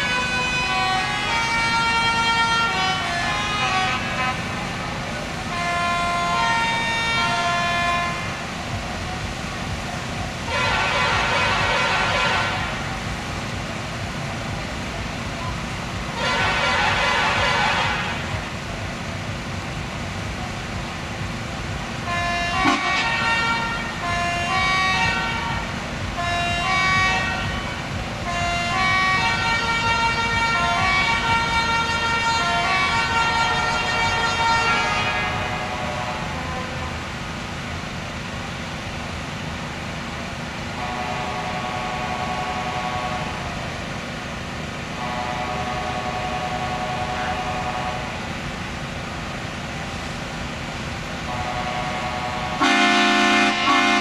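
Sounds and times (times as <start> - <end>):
horn-like tune: 0.0 - 9.2, 10.4 - 13.0, 15.4 - 18.6, 22.0 - 37.0, 40.7 - 43.6, 44.9 - 48.3, 51.2 - 54.0.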